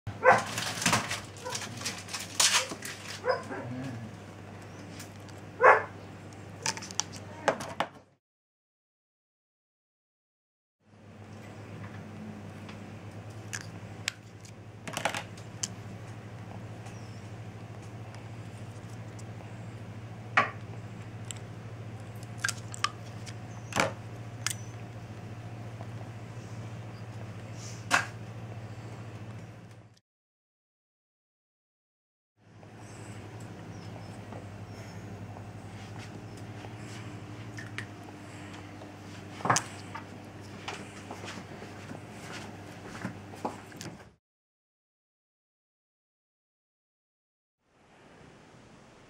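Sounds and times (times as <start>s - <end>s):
steady low hum: 10.9s - 30.0s, 32.4s - 44.0s
plastic syringes clicking: 22.2s - 23.4s.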